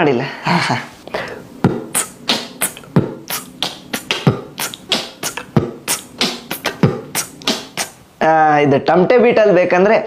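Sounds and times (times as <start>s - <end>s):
man beatboxing: 1.2s - 8.0s.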